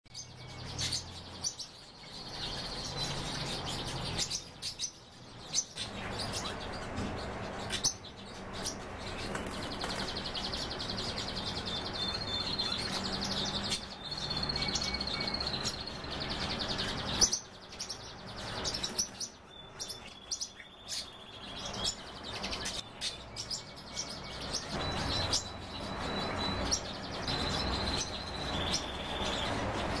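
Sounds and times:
birds trilling calls: 0:00.1 - 0:30.0.

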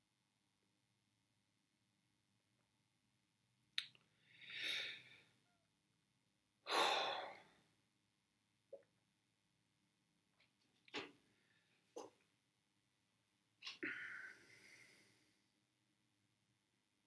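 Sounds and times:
man sighing: 0:13.8 - 0:14.4
man breathing in: 0:13.8 - 0:15.3.

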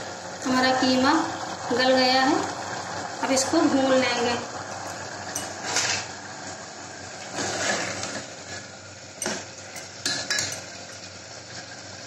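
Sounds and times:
metal clinking on pot: 0:04.9 - 0:06.0, 0:09.2 - 0:11.1
spoon stirring and scraping pot: 0:05.3 - 0:06.1, 0:07.3 - 0:08.6, 0:09.2 - 0:11.1.

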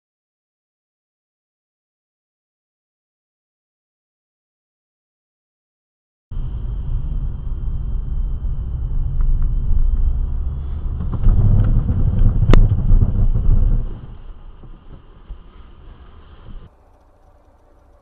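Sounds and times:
car road and engine rumble: 0:06.3 - 0:18.0
thin high recorder whine: 0:06.4 - 0:11.2, 0:13.5 - 0:18.0
light clicks: 0:16.4 - 0:18.0.

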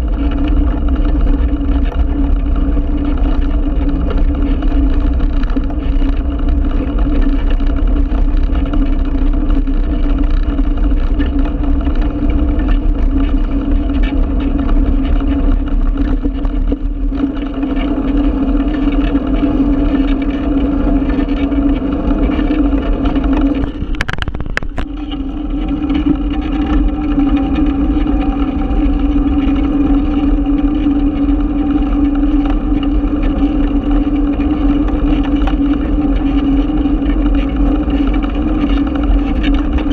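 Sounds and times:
low hum: 0:00.0 - 0:39.9
road vibration and wind drone: 0:00.0 - 0:39.9
short clatter: 0:23.1 - 0:25.3.

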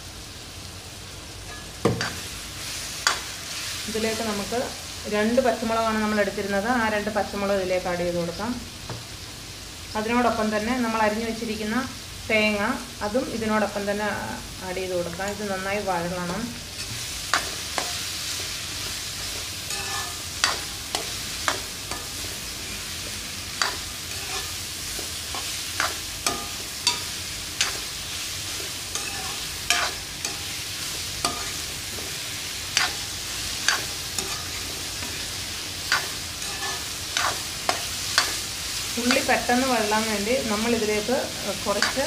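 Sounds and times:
vegetables sizzling in oil: 0:00.0 - 0:42.0
ladle clinking and scraping pan: 0:19.7 - 0:22.4, 0:23.6 - 0:27.8, 0:28.6 - 0:30.6, 0:32.8 - 0:35.2, 0:35.9 - 0:38.4.

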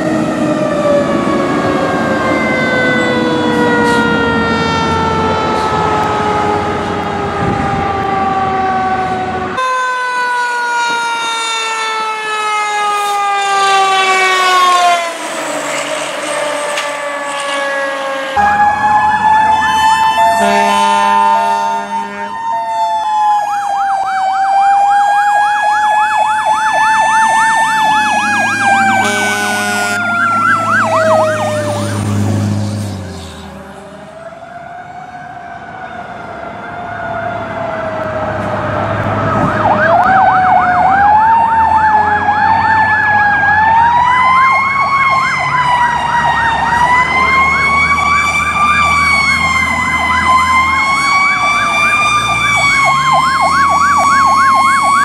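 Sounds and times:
fire truck sirens wailing and yelping: 0:00.0 - 0:55.0
horn blasts: 0:19.8 - 0:22.4, 0:29.0 - 0:30.2.

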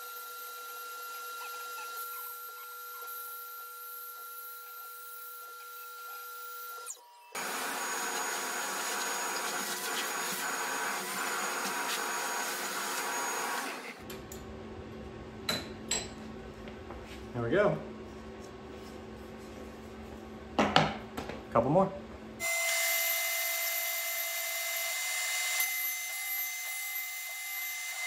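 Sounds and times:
mill spindle whine: 0:00.0 - 0:14.1
shop vacuum running: 0:00.0 - 0:25.7
hiss of cutting plywood: 0:07.4 - 0:14.0.

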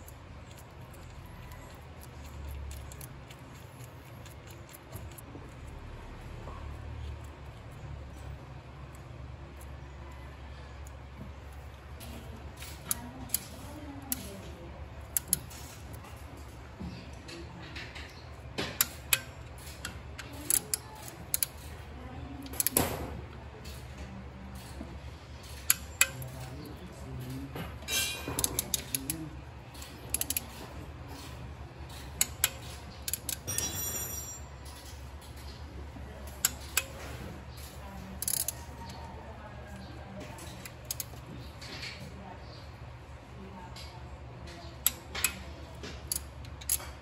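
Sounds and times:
ratchet clicking: 0:00.0 - 0:05.2, 0:15.0 - 0:16.0, 0:18.8 - 0:21.8, 0:22.4 - 0:22.8, 0:25.4 - 0:26.4, 0:29.7 - 0:31.3, 0:31.9 - 0:34.2, 0:37.6 - 0:38.8, 0:40.6 - 0:41.2, 0:46.0 - 0:47.0
metallic clicks of wrench on bolts: 0:01.7 - 0:03.4, 0:15.0 - 0:16.0, 0:17.7 - 0:21.7, 0:22.4 - 0:23.0, 0:25.4 - 0:26.4, 0:27.8 - 0:30.6, 0:31.9 - 0:35.5, 0:36.3 - 0:37.0, 0:37.6 - 0:39.0, 0:40.4 - 0:41.2, 0:44.8 - 0:47.0.

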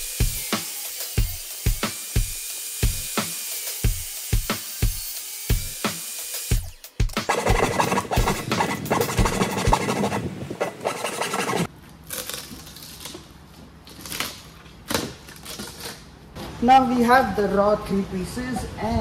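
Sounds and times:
hardboard panel scraping and rubbing: 0:07.2 - 0:11.7.

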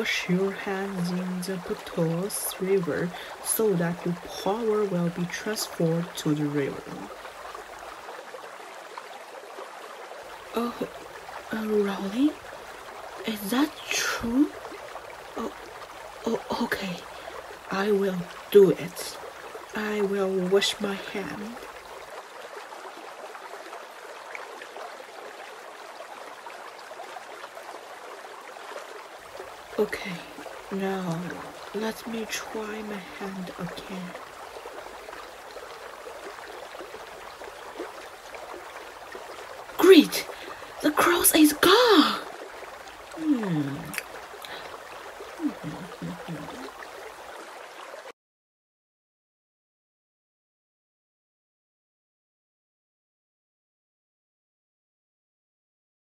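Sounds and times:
faint steady hiss: 0:00.0 - 0:48.0
running water: 0:00.0 - 0:48.2
person's wordless voice: 0:10.6 - 0:10.9, 0:16.3 - 0:17.1, 0:29.8 - 0:34.2, 0:39.8 - 0:42.3, 0:43.2 - 0:44.7, 0:45.4 - 0:46.7.

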